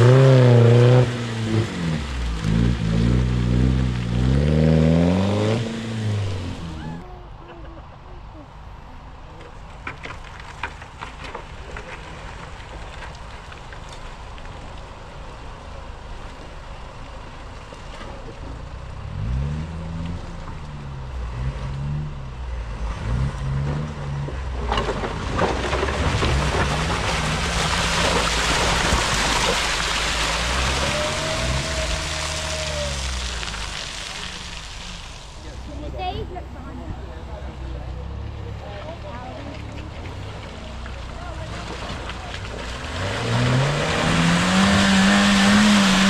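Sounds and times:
car engine revving: 0:00.0 - 0:07.0, 0:18.8 - 0:46.0
tyres churning through mud: 0:00.0 - 0:07.1, 0:08.5 - 0:46.0.

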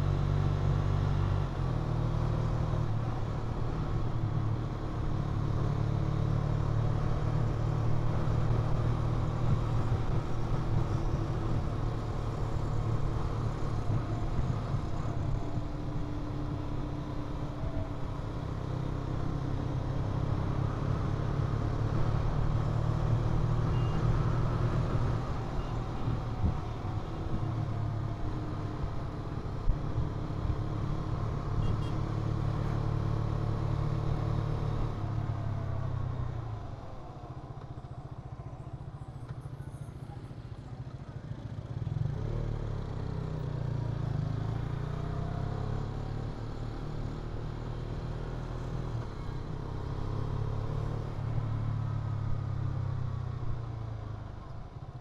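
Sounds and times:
road noise: 0:00.0 - 0:55.0
vehicle engine: 0:00.0 - 0:55.0.

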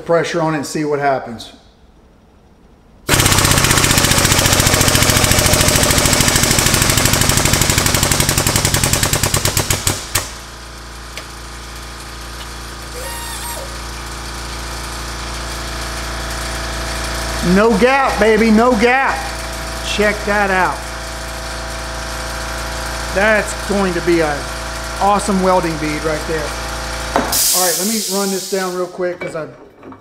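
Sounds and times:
steady machine hum: 0:10.4 - 0:26.7.

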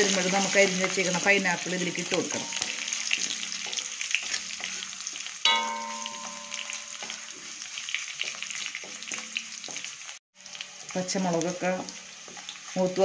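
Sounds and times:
spices sizzling and crackling in oil: 0:00.0 - 0:13.0
sharp metallic clang: 0:05.5 - 0:07.3.

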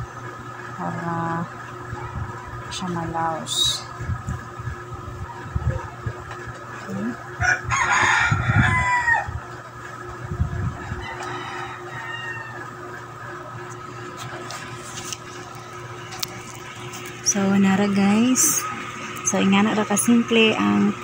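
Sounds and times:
rooster crowing: 0:07.4 - 0:09.6, 0:10.7 - 0:13.0.

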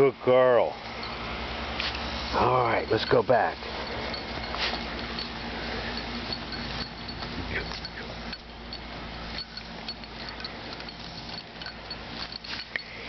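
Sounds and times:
outdoor background hiss: 0:00.0 - 0:13.0
dog collar tag clinking: 0:02.8 - 0:13.0.

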